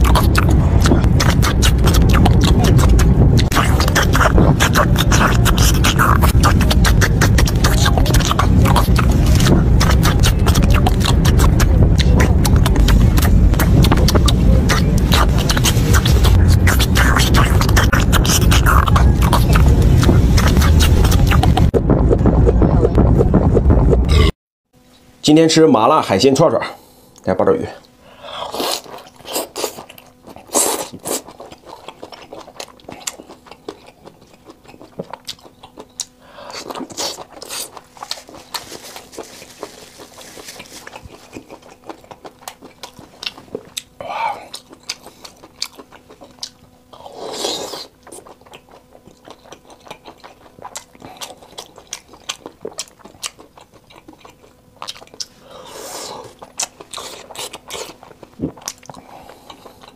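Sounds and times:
sticky mouth clicks: 0.0 - 21.8, 40.8 - 59.9
wet chewing and biting: 0.0 - 22.4, 27.8 - 59.9
slurping: 0.0 - 23.0, 28.3 - 59.9.

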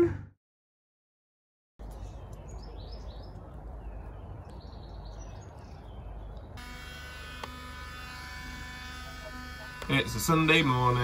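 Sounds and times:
small birds chirping: 1.8 - 6.6
window vacuum motor buzzing: 6.6 - 11.0.

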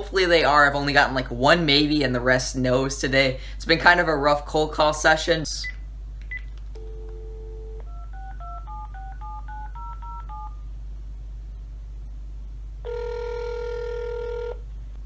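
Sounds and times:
keypad tones: 6.2 - 10.6
phone dial tone: 6.8 - 10.6, 12.8 - 14.6
phone ringback tone: 6.8 - 10.6, 12.8 - 14.6.

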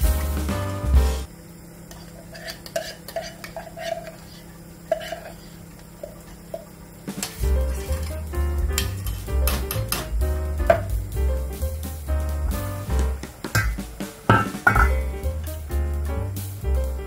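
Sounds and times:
background music: 0.0 - 1.3, 7.4 - 17.0
metal spoon scraping in tin can: 2.2 - 5.5.

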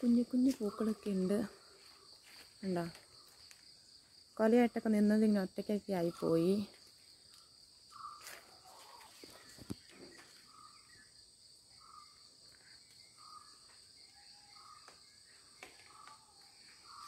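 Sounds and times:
insects trilling: 0.0 - 17.0
bird chirping: 7.9 - 17.0.

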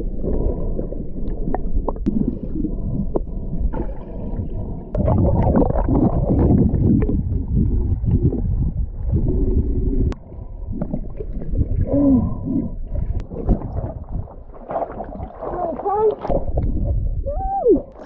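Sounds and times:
muffled underwater water sloshing: 0.0 - 18.0.

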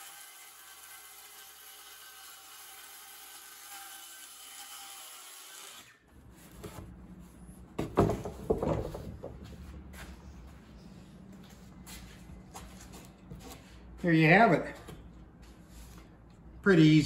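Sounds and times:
sharp wooden knocks: 7.8 - 9.4.

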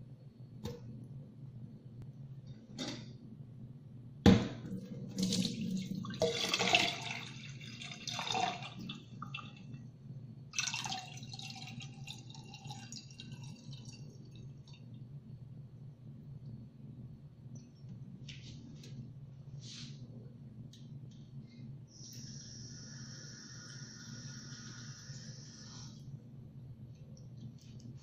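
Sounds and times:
water sloshing and pouring: 4.7 - 9.8, 10.6 - 14.8.

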